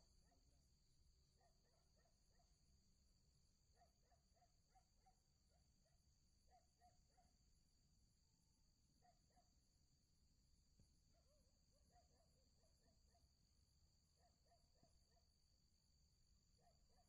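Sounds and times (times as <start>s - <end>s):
night animals chirping: 6.4s - 7.4s, 9.0s - 9.5s, 16.6s - 17.0s.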